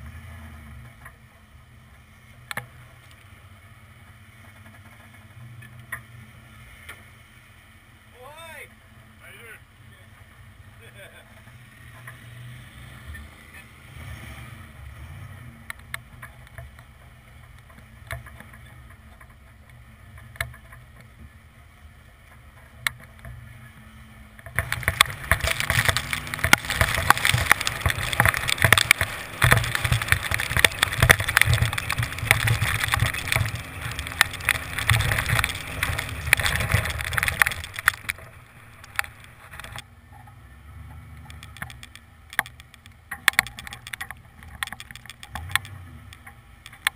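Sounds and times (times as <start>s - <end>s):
truck engine rumbling: 0.0s - 46.9s
loud crackling rush of noise: 15.6s - 40.0s, 40.8s - 46.9s.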